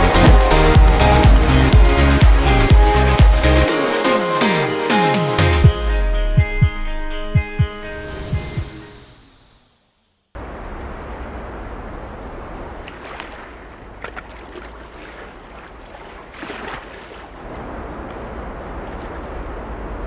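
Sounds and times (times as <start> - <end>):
low rumble: 0.0 - 3.7
water lapping: 0.0 - 3.7, 10.4 - 20.0
music: 0.0 - 9.2
wind: 8.1 - 20.0.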